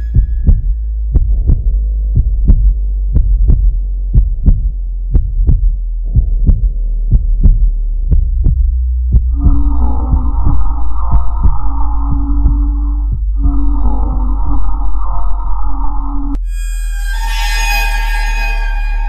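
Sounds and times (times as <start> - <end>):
heartbeat thumps: 0.0 - 14.8
low hum: 0.0 - 19.0.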